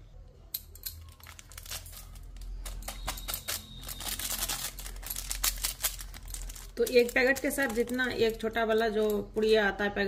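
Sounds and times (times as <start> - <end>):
foil sachet crinkling: 1.0 - 8.7.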